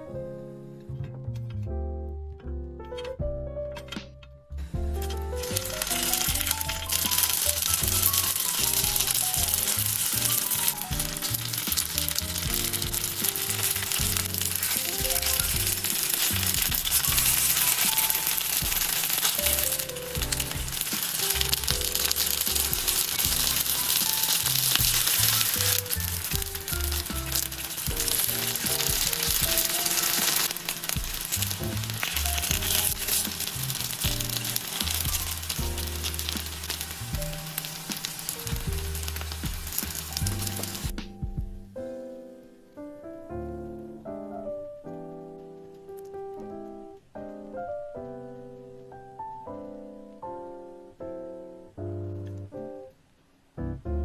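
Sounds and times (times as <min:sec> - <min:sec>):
light background music: 0:00.0 - 0:52.9
rolls sizzling in oil: 0:05.0 - 0:41.0.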